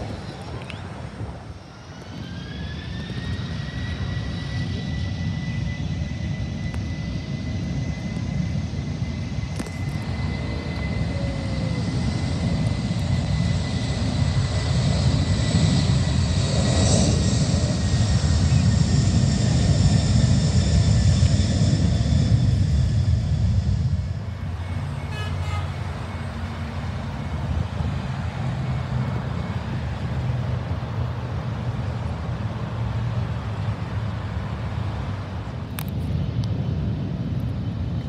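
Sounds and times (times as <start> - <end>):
jet engine low rumble: 0.0 - 38.0
jet engine whine: 0.0 - 38.0.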